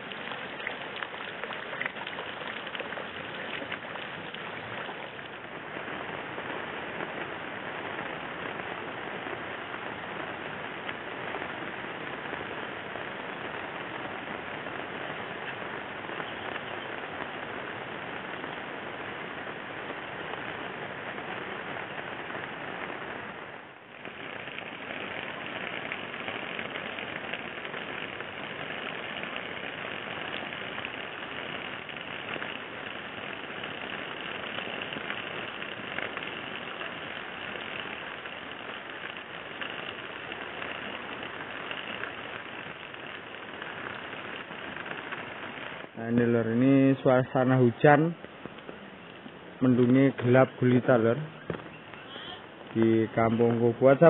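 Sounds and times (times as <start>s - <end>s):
rain falling on leaves: 0.0s - 54.0s.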